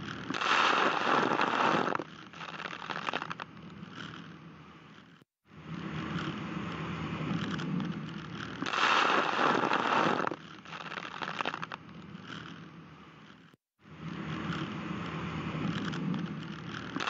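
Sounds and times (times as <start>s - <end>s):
boat engine and hull noise: 0.0s - 17.0s
spray rushing over bow: 8.6s - 10.4s.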